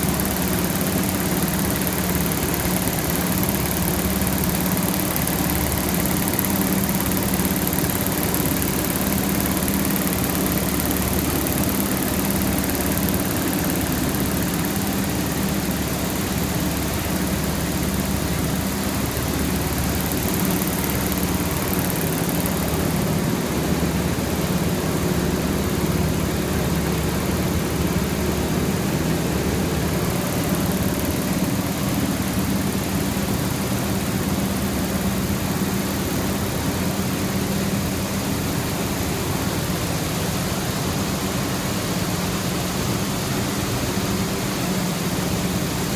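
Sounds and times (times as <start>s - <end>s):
looms running: 0.0s - 35.4s
low machine hum: 0.0s - 35.4s.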